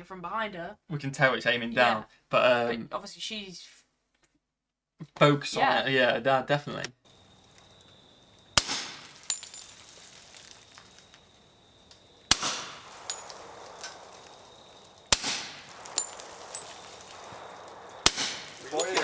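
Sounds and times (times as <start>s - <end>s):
handgun shots echoing: 8.5s - 9.4s, 12.2s - 19.0s.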